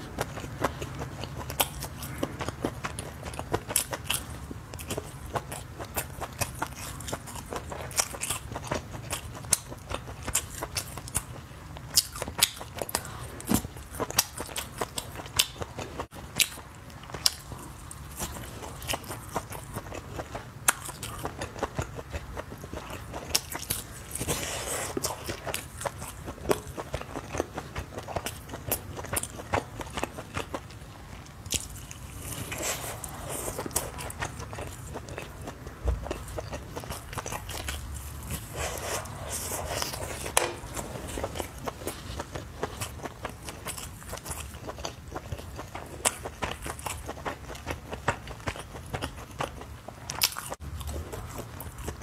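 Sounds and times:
biting and chewing sausage: 0.0s - 52.0s.

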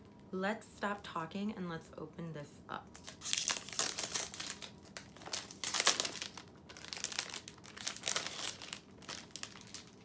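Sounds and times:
cellophane crinkling: 2.9s - 10.0s.

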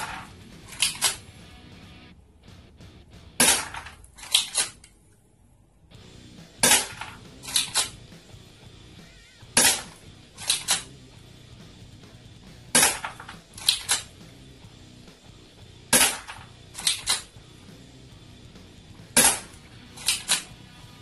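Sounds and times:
airsoft pistol shots: 0.0s - 1.2s, 3.4s - 4.8s, 6.6s - 8.0s, 9.6s - 10.9s, 12.7s - 14.2s, 15.9s - 17.3s, 19.1s - 20.5s
pistol slide clicks: 0.7s - 1.2s, 6.7s - 8.0s, 9.6s - 10.9s, 12.8s - 14.1s, 16.0s - 17.3s, 19.2s - 20.5s.

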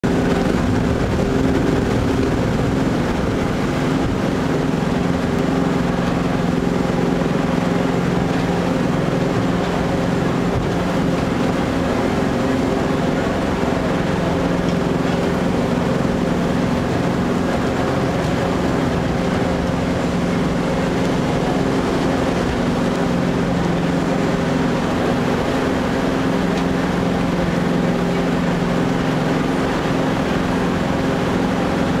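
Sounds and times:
boat engine running: 0.0s - 32.0s
rushing water: 0.0s - 32.0s
wind: 0.0s - 32.0s.

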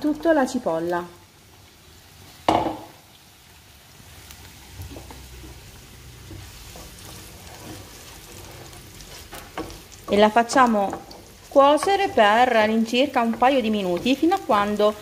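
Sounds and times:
onion sizzling in a pan: 0.0s - 15.0s
wooden spoon scraping a pan: 4.4s - 15.0s.

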